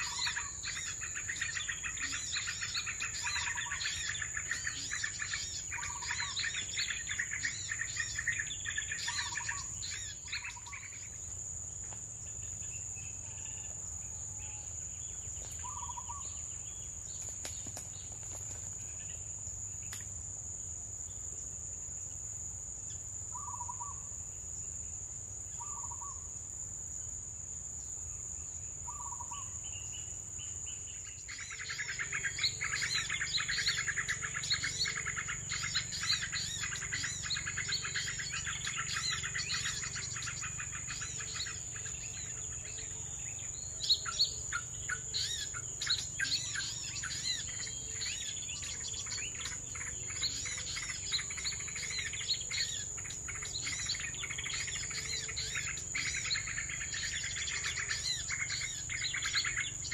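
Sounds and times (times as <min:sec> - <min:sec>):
high-pitched insect drone: 0:00.0 - 0:13.7, 0:28.9 - 0:59.9
small birds chirping: 0:00.0 - 0:20.2, 0:22.9 - 0:24.9, 0:25.5 - 0:26.3, 0:28.5 - 0:59.9.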